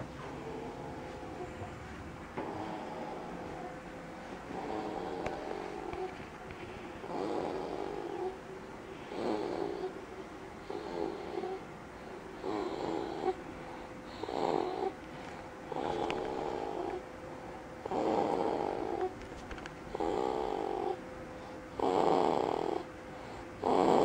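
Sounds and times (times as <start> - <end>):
baby snoring: 4.5 - 6.2, 7.0 - 8.4, 9.1 - 10.0, 10.6 - 11.6, 12.4 - 13.4, 14.1 - 15.0, 15.7 - 17.0, 17.8 - 19.1, 19.9 - 21.0, 21.8 - 22.9, 23.6 - 24.0.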